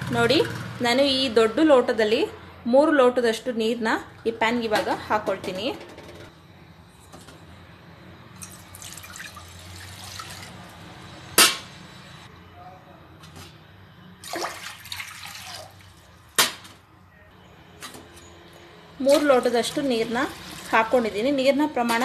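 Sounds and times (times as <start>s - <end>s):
water pouring into metal pot: 8.4s - 10.6s, 14.3s - 16.0s, 20.2s - 21.0s.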